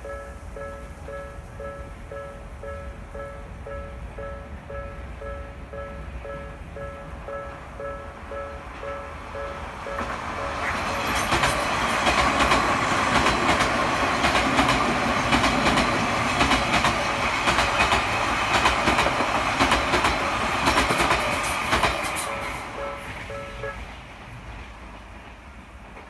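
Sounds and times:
train wheels clattering over rail joints: 0:10.0 - 0:23.3.

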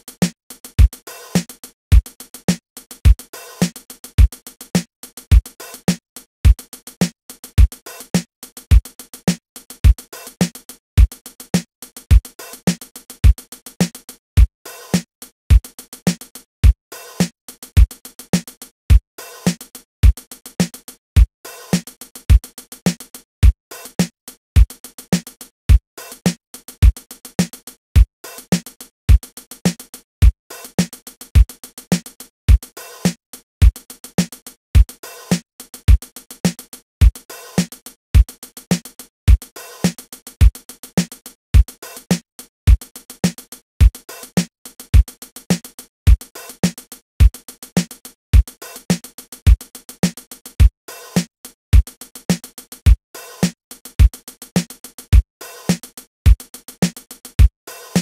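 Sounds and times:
hi-hat pattern: 0:00.0 - 0:58.0
snare drum: 0:00.0 - 0:58.0
kick drum: 0:06.4 - 0:06.6.

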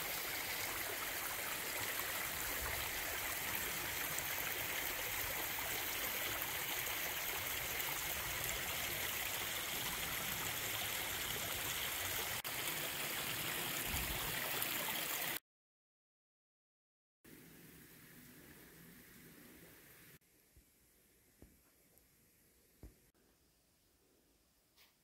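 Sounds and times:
stream running over rocks: 0:00.0 - 0:15.4.

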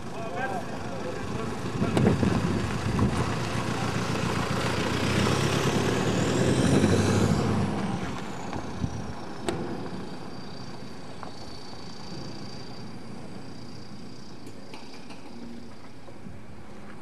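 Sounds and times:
car driving over dirt: 0:01.0 - 0:13.6.

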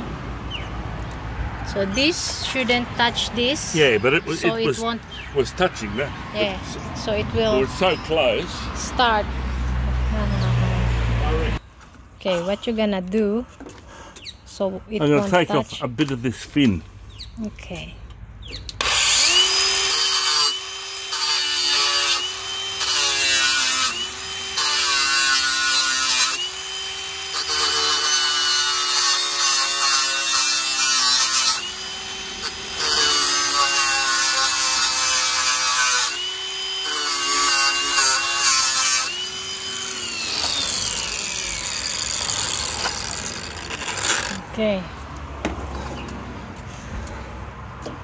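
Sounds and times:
power tool motor whining: 0:18.6 - 0:44.5
rasp of cutting metal: 0:18.8 - 0:44.4.

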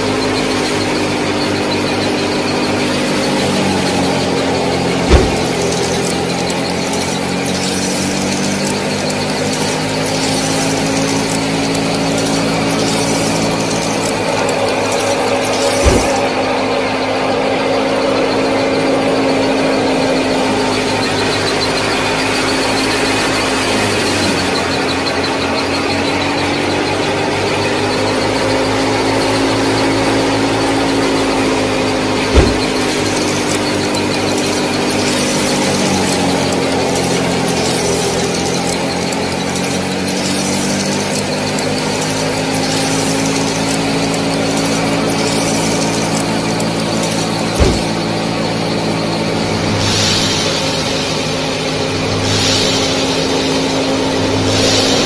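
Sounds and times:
small motors humming: 0:00.0 - 0:55.0
sharp knocks: 0:05.0 - 0:08.5, 0:14.5 - 0:16.3, 0:32.3 - 0:34.6, 0:47.6 - 0:48.1.

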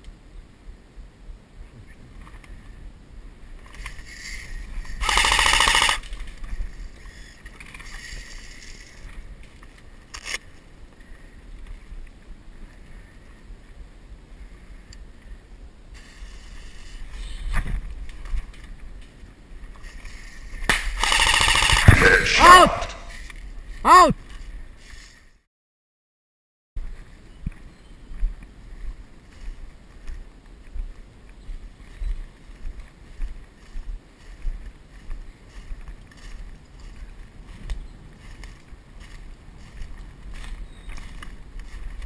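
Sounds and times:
airsoft gun full-auto burst: 0:05.0 - 0:06.0, 0:21.0 - 0:22.3
wind rumble on microphone: 0:06.1 - 0:21.0.

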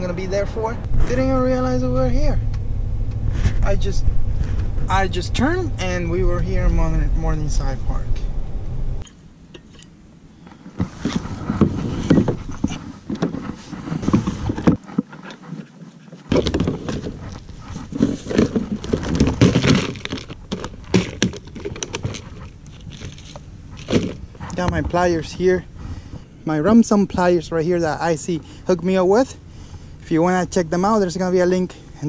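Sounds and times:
plastic parts clicking and knocking: 0:16.3 - 0:24.2.

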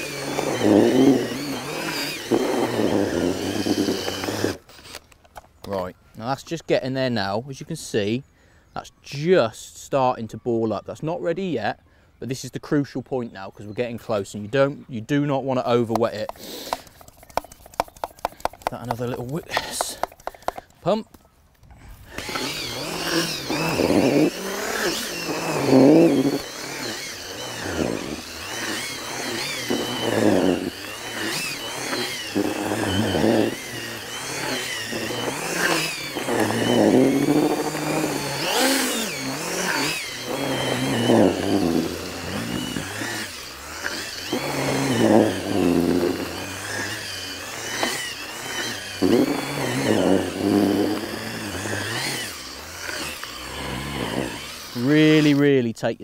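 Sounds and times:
power drill mixing whisk revving: 0:00.0 - 0:05.0, 0:15.3 - 0:21.0, 0:21.8 - 0:55.7.

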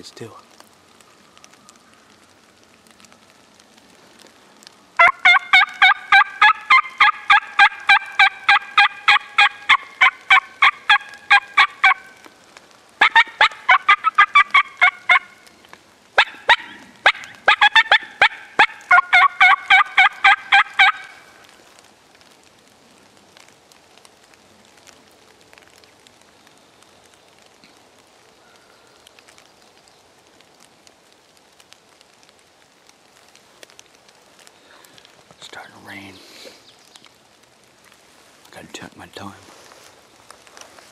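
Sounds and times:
turkey hen yelping: 0:05.0 - 0:12.2, 0:13.0 - 0:15.4, 0:16.2 - 0:21.2.

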